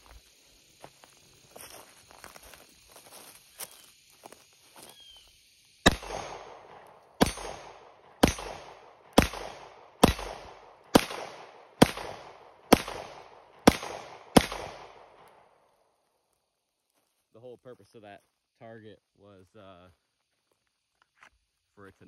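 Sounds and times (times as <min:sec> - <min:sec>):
pistol shots with echo: 0:05.8 - 0:15.4.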